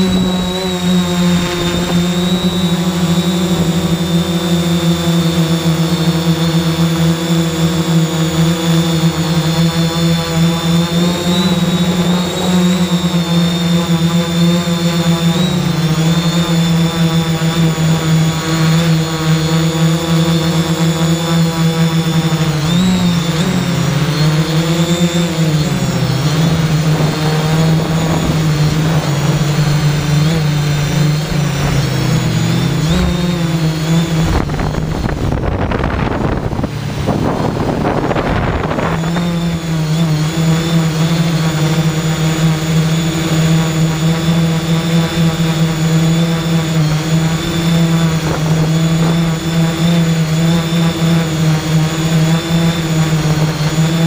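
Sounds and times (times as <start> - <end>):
rough noisy rush: 0.0 - 7.0, 21.6 - 50.4
drone motors humming: 0.0 - 54.0.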